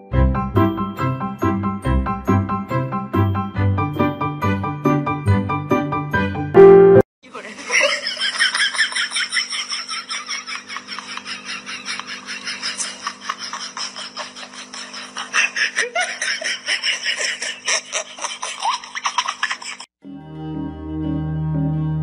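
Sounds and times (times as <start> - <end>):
piano music: 0.0 - 7.1, 20.0 - 22.0
people laughing: 7.3 - 19.9.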